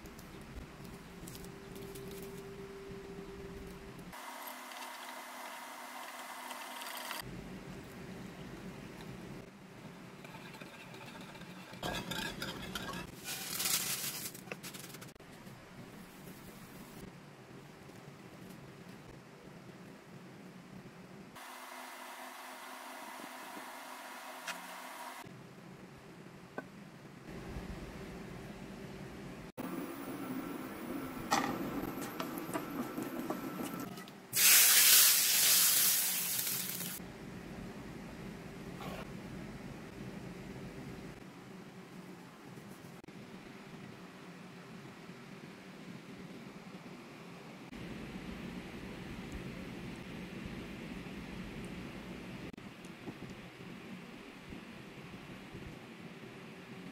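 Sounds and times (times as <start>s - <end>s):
spatula scraping frying pan: 10.2s - 13.6s
hot fat sizzling on yogurt: 34.3s - 37.0s.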